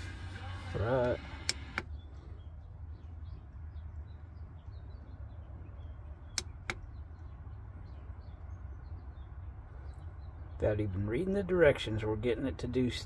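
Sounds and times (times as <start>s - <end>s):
low steady hum: 0.0s - 13.0s
car stereo button clicks: 1.0s - 1.9s, 6.3s - 6.8s.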